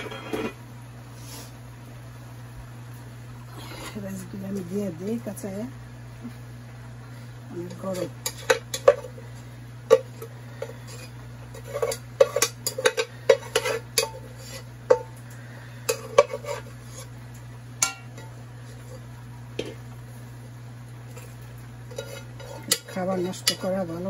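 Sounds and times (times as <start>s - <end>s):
metal spoon scraping a pot: 0.0s - 0.6s, 7.6s - 9.2s, 9.9s - 15.1s, 15.8s - 17.2s, 21.1s - 24.0s
steady low hum: 0.0s - 24.0s.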